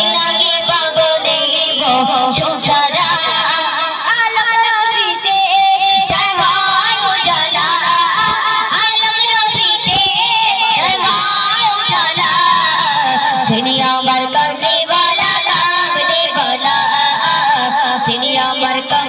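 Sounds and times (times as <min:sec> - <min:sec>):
woman singing into microphone: 0:00.0 - 0:19.0.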